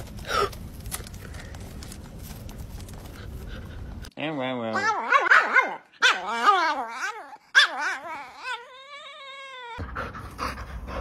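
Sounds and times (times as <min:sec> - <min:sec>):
small dog howling: 0:04.8 - 0:09.8.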